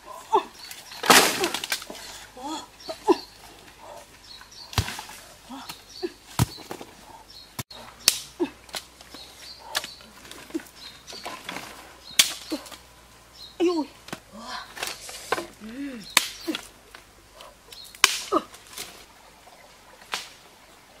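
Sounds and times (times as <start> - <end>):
dry sticks snapping: 0.6 - 2.1, 7.6 - 12.8, 14.0 - 19.0, 20.0 - 20.4.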